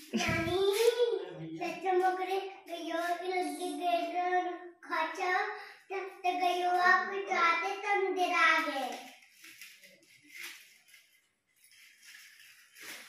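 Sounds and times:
child singing slow tune: 0:00.2 - 0:08.8.

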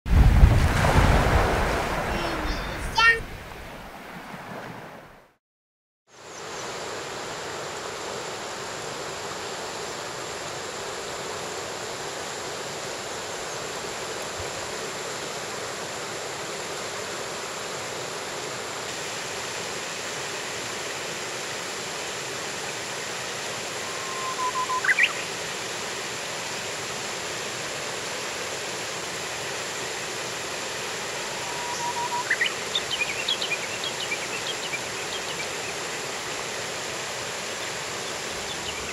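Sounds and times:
river rushing over stones: 0:00.2 - 0:04.1, 0:06.8 - 0:38.9
bird whistling song: 0:23.8 - 0:25.3, 0:31.4 - 0:35.5.

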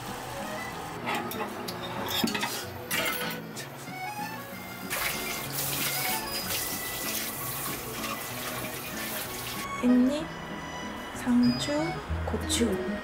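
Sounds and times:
soft background music: 0:00.0 - 0:13.0
sauce sizzling in a pot: 0:05.0 - 0:09.6.

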